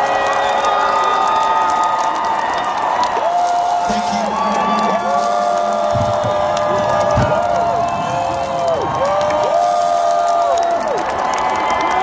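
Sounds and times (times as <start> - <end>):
crowd cheering and whooping: 0.0 - 12.0.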